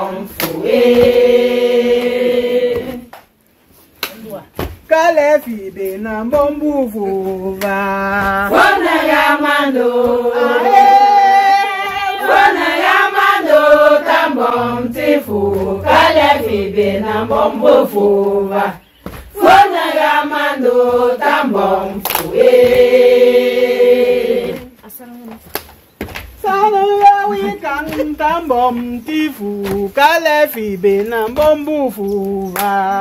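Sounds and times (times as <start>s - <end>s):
women singing in unison: 0.0s - 3.1s, 6.9s - 24.8s.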